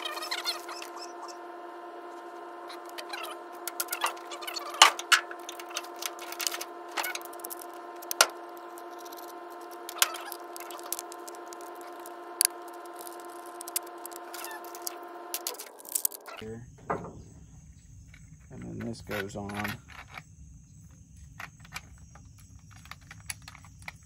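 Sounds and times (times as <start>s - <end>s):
steady hum: 0.0s - 24.0s
metal and plastic parts clicking: 2.9s - 16.4s, 18.1s - 20.2s, 21.3s - 24.0s.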